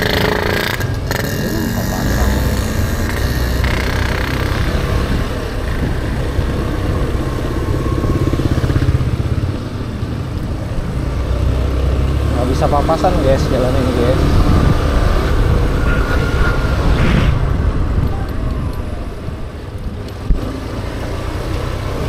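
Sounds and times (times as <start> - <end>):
scooter engine running: 0.0 - 15.4.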